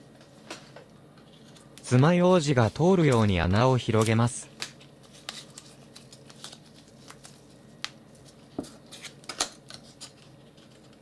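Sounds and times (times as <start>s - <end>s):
paper rustling: 5.0s - 11.0s.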